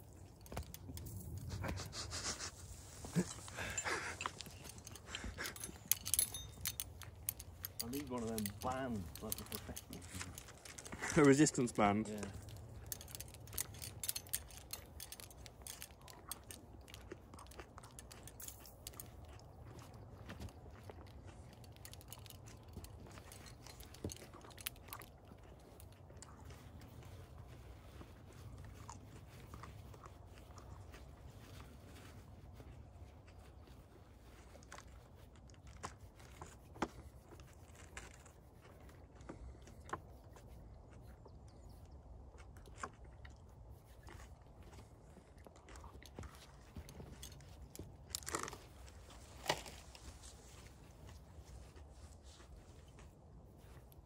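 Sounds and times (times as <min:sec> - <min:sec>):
metal climbing gear clinking: 0:00.0 - 0:32.7, 0:43.8 - 0:51.8
small clicks and light crunches: 0:00.0 - 0:54.0.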